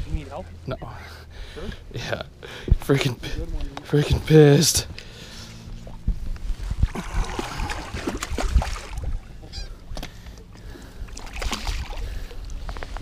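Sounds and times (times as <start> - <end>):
low rumble: 4.8 - 11.3
fish splashing at water surface: 6.8 - 9.2, 11.0 - 12.2.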